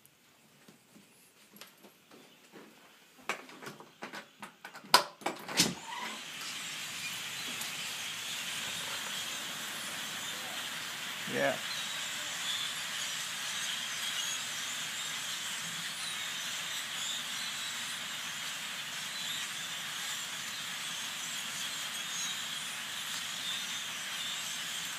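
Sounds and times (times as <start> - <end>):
rush of many wings: 6.0 - 24.9
flock of birds chirping: 6.4 - 24.9.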